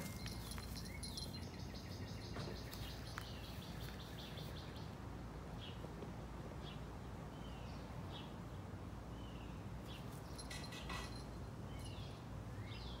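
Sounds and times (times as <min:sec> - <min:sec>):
small birds chirping: 0:00.0 - 0:05.9, 0:06.6 - 0:13.0.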